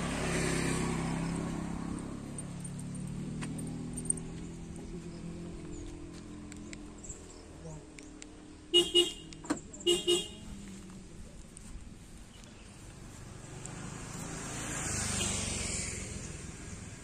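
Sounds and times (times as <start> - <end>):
vehicle passing: 0.0 - 7.9, 10.0 - 17.0
car horn toots: 8.7 - 10.5.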